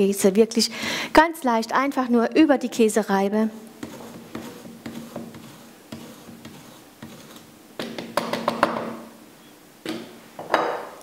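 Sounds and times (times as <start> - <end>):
cheese scraping on grater: 3.8 - 7.5.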